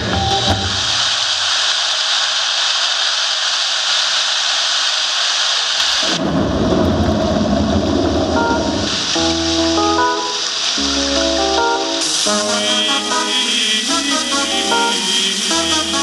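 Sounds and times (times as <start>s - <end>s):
music notes: 0.0s - 1.0s, 8.4s - 16.0s
rushing water hiss: 0.0s - 16.0s
deep rumble: 6.0s - 9.9s.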